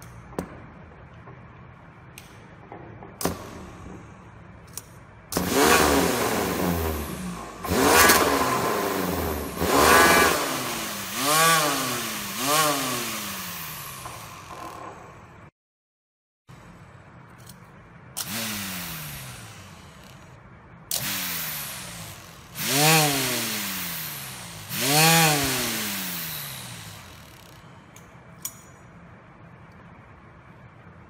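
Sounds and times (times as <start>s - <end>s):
electric motor whine: 18.2s - 20.3s, 21.0s - 27.6s.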